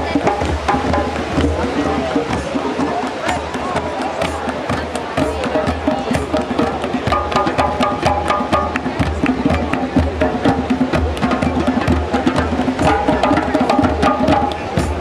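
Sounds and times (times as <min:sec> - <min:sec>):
fast steady drumming: 0:00.0 - 0:15.0.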